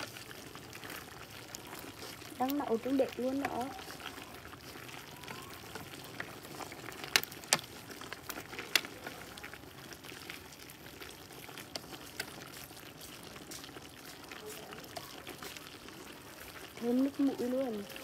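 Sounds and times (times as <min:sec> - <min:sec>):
stew boiling and bubbling: 0:00.0 - 0:18.0.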